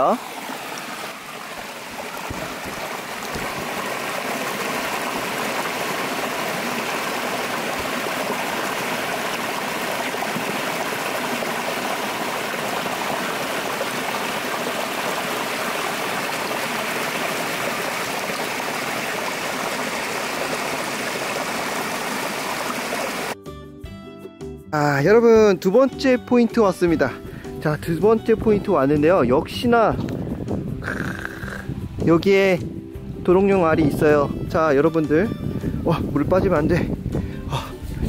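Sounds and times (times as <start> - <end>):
stream water rushing over rocks: 0.0 - 23.4.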